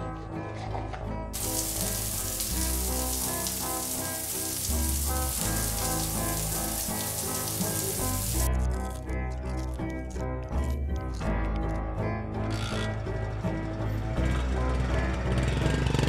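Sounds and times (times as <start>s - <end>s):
music with deep bass notes: 0.0s - 16.0s
shower water spraying: 1.4s - 8.5s.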